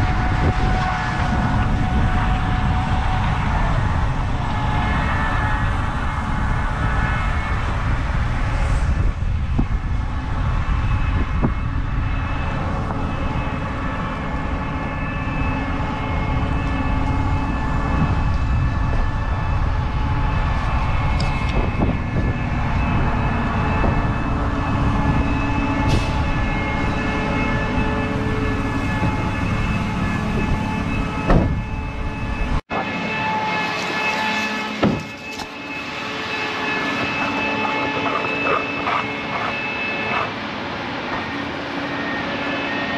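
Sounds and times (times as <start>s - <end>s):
wind rumble on microphone: 0.0s - 32.8s
combine harvester machine whine: 0.0s - 42.9s.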